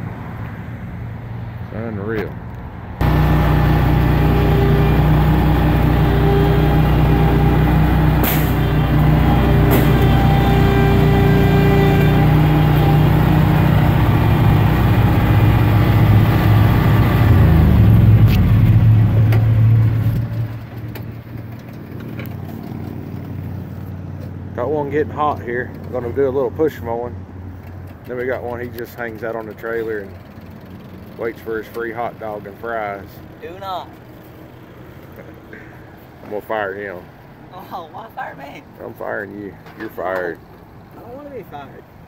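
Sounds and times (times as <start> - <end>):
engine running loudly: 3.0 - 20.3.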